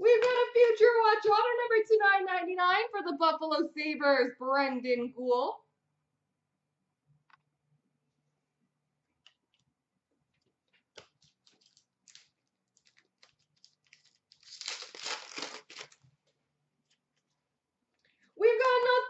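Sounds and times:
card wrapper tearing open: 0:10.9 - 0:16.1.

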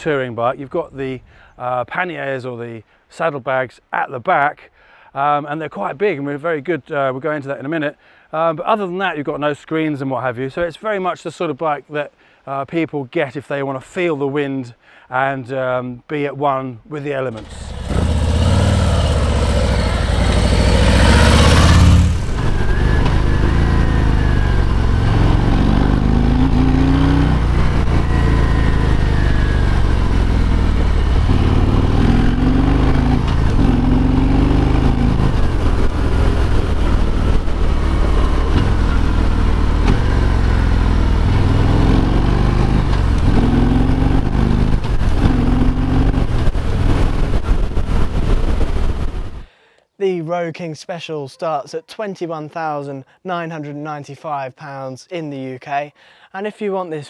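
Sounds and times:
motorcycle engine approaching: 0:17.4 - 0:49.4
motorcycle engine accelerating: 0:17.4 - 0:49.5.

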